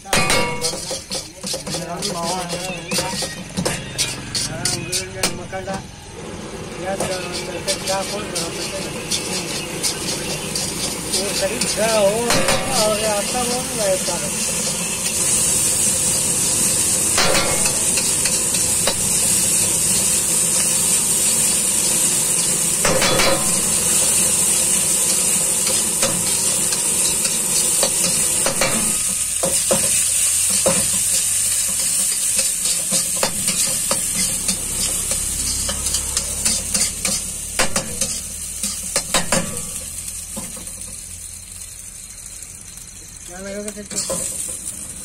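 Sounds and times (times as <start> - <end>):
rice sizzling in a wok: 0.0 - 45.0
spatula scraping and clinking on pan: 0.1 - 5.8, 6.7 - 15.9, 17.1 - 19.2, 22.8 - 40.8.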